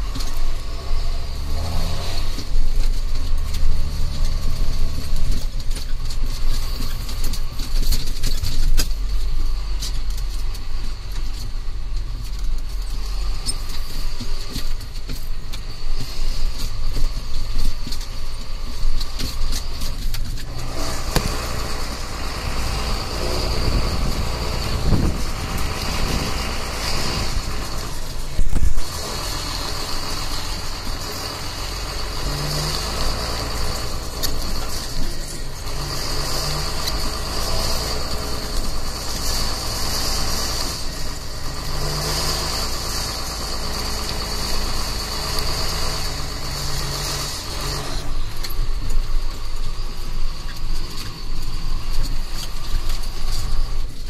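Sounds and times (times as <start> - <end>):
tractor diesel engine droning: 0.0 - 54.0
high whine: 20.4 - 41.9.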